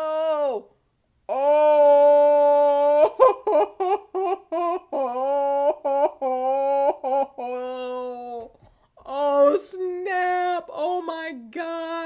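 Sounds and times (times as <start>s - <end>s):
woman's muffled humming exclamation: 0.0s - 0.7s, 1.3s - 3.2s, 4.9s - 8.5s.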